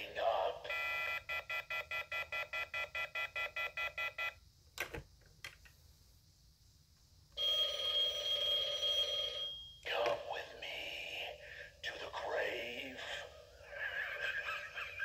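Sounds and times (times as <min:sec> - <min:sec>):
rapid electronic phone ring: 0:00.7 - 0:04.4, 0:07.4 - 0:09.7
steady electronic phone tone: 0:00.7 - 0:04.4, 0:07.4 - 0:09.7.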